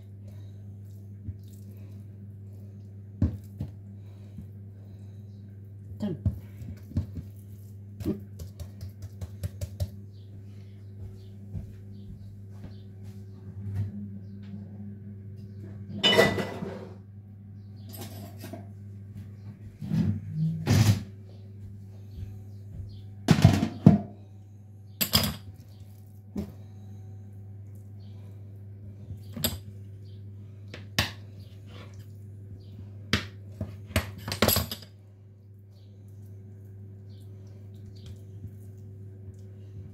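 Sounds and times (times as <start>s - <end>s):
steady low hum: 0.0s - 39.9s
kitchen items clattering: 15.9s - 17.0s, 17.9s - 18.7s, 23.3s - 24.2s, 33.9s - 34.9s.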